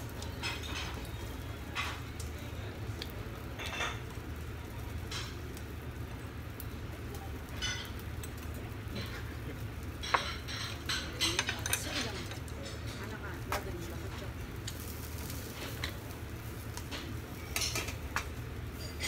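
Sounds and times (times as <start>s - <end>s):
dishes and eating: 0.2s - 2.3s, 3.0s - 4.2s, 7.6s - 13.2s, 16.8s - 19.0s.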